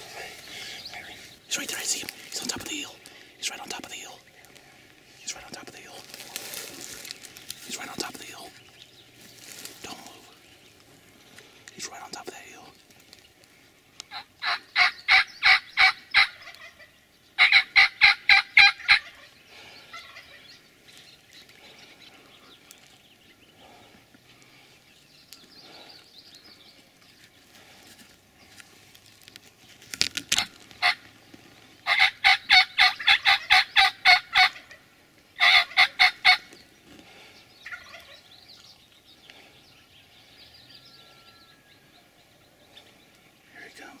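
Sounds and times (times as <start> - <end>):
wild turkey yelps: 14.1 - 20.4, 30.3 - 31.1, 31.8 - 36.6, 37.6 - 38.3.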